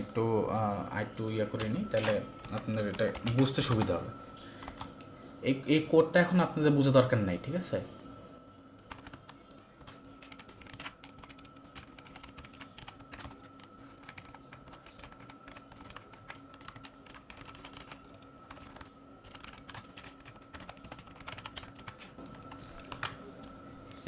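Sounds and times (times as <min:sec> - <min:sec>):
keyboard typing clicks: 0:08.8 - 0:23.2.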